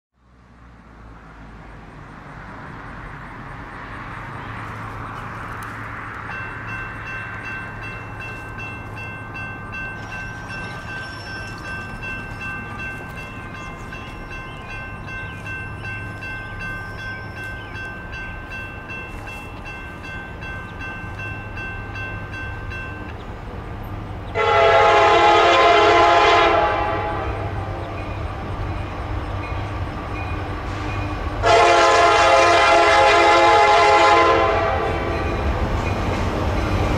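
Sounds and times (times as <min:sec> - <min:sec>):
diesel locomotive rumble: 0:00.3 - 0:36.9
locomotive horn blast: 0:24.3 - 0:27.9, 0:30.7 - 0:35.3.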